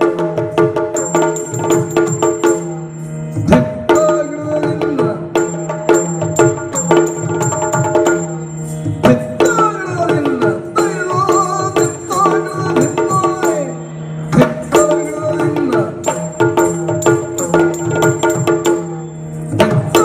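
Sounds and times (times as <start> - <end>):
high ringing metallic tone: 0.8 - 20.0
wavering melodic line: 5.4 - 20.0.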